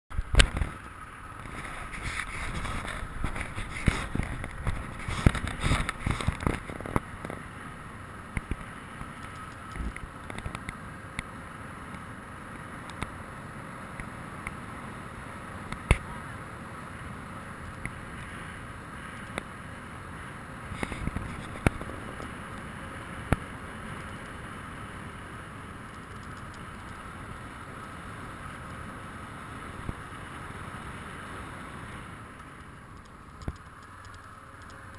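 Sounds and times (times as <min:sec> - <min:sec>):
wind noise: 0:01.4 - 0:07.5.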